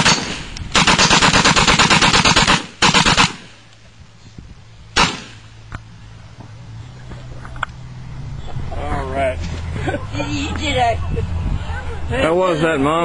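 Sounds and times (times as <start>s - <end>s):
machine gun firing: 0.0s - 3.6s, 5.0s - 5.4s.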